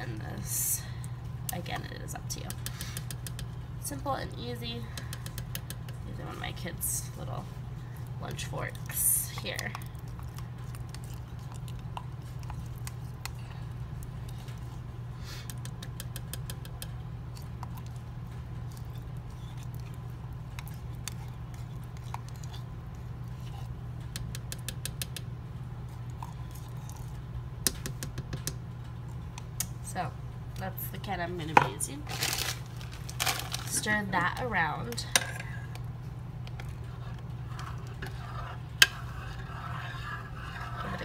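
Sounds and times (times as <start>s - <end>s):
steady low hum: 0.0s - 41.0s
fork scraping a tin can: 37.5s - 41.0s.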